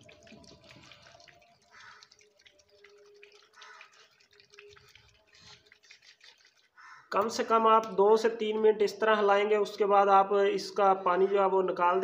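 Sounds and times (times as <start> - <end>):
water sloshing inside battery: 0.0 - 7.4.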